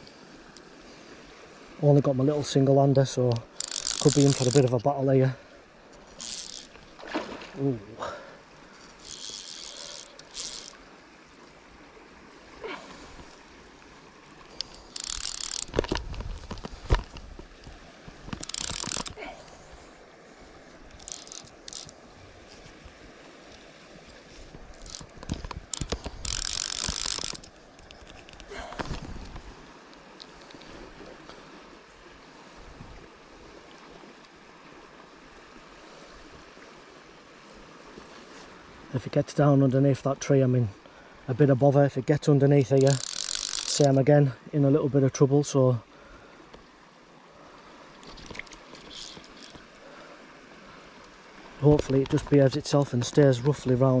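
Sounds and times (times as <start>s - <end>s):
river water flowing: 0.0s - 54.0s
faint clicks: 3.3s - 4.9s, 8.7s - 10.8s, 14.5s - 17.7s, 18.3s - 19.2s, 20.9s - 21.9s, 24.5s - 30.7s, 42.7s - 44.0s
knocks from handling rod and reel: 3.3s - 4.9s, 6.0s - 7.3s, 8.7s - 10.8s, 14.6s - 17.4s, 18.2s - 19.2s, 24.5s - 29.4s, 42.8s - 44.0s, 48.0s - 49.6s
fly reel ratchet buzzing: 3.4s - 4.8s, 6.0s - 6.8s, 8.8s - 10.8s, 14.5s - 16.0s, 18.3s - 19.2s, 20.9s - 22.0s, 24.7s - 28.1s, 42.7s - 43.9s, 48.2s - 49.6s.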